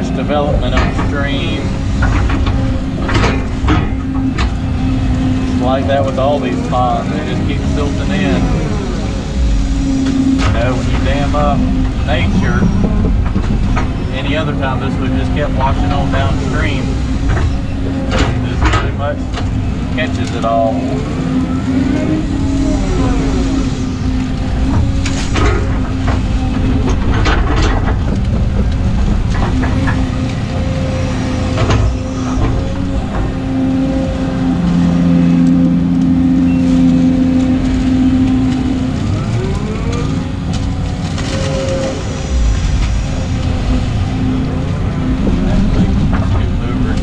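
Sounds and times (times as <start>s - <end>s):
bucket clanking: 0.0s - 21.4s
excavator engine hum: 0.0s - 47.0s
hydraulic whine: 0.0s - 47.0s.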